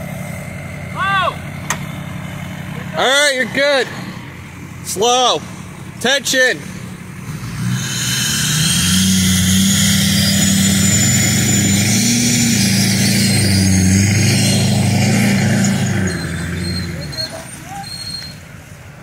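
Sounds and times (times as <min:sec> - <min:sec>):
engine revving hard: 0:07.2 - 0:17.6.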